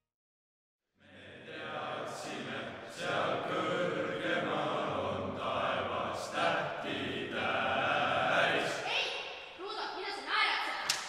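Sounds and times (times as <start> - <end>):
boys choir singing: 1.0 - 9.6.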